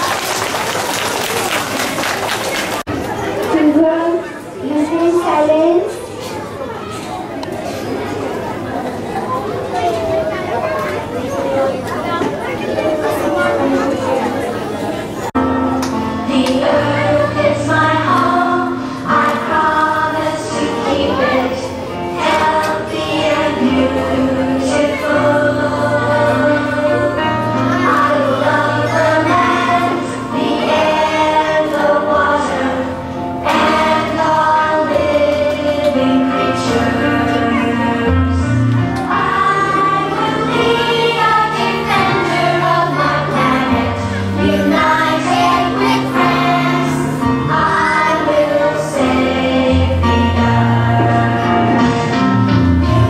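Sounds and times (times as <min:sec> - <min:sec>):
children singing: 0:16.0 - 0:53.0.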